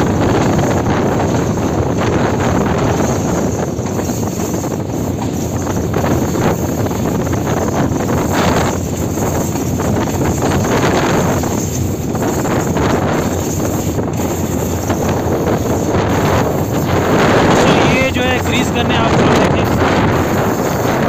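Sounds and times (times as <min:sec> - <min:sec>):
rail clacks: 0:00.0 - 0:21.0
train wheels rumbling on rails: 0:00.0 - 0:21.0
wind buffeting microphone: 0:00.0 - 0:21.0.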